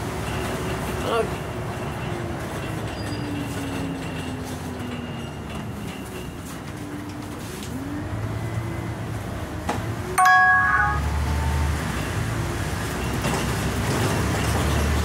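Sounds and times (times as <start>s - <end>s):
bus engine running: 0.0s - 15.0s
loud ringing ding: 10.2s - 11.2s.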